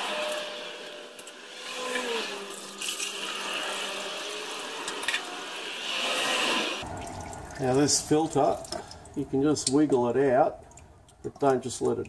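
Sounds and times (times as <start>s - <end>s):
fluid trickling and dripping: 6.8s - 12.0s.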